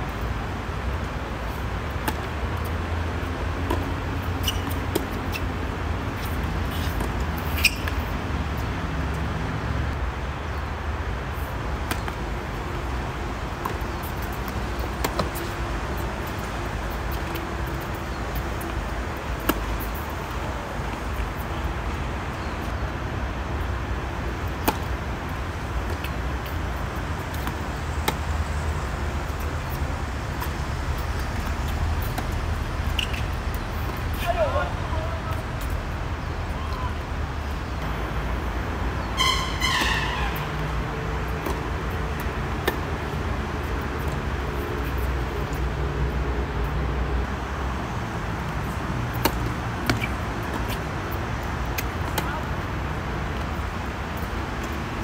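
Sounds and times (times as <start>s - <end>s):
tennis racket hitting ball: 49.1s - 50.8s.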